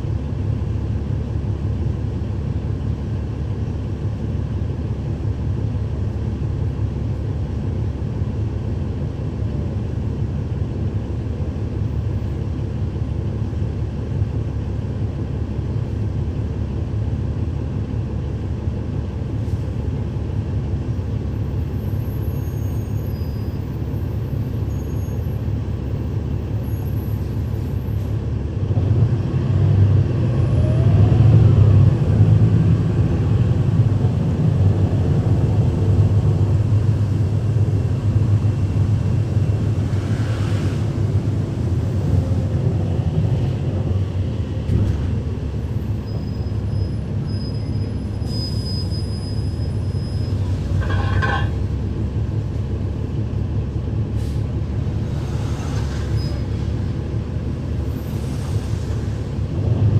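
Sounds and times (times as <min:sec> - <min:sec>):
bus diesel engine revving: 0:28.6 - 0:46.0.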